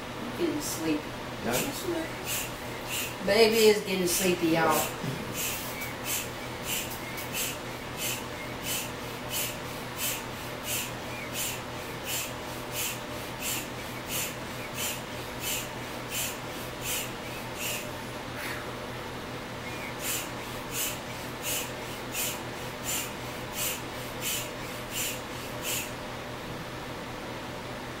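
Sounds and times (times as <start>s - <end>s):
hand pump air puffs: 1.6s - 3.7s, 4.6s - 18.0s, 19.6s - 26.0s.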